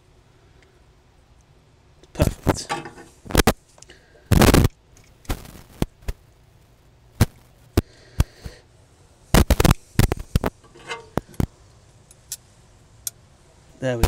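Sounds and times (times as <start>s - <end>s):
short metal rattle: 10.6s - 11.2s.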